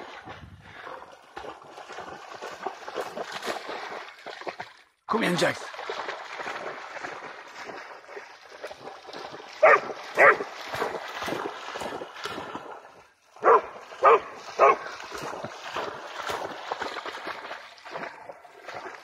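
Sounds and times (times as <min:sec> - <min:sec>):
legs splashing through shallow water: 0:00.0 - 0:19.0
dog barking: 0:09.6 - 0:10.5, 0:13.4 - 0:14.9.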